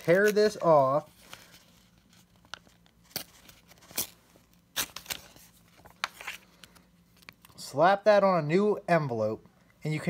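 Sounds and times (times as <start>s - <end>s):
paper envelope tearing: 2.7s - 6.5s.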